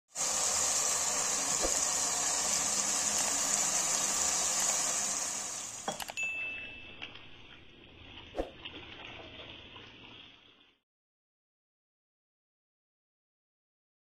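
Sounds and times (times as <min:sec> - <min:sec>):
meat sizzling in a frying pan: 0:00.1 - 0:05.9
high ringing tone: 0:05.9 - 0:07.6.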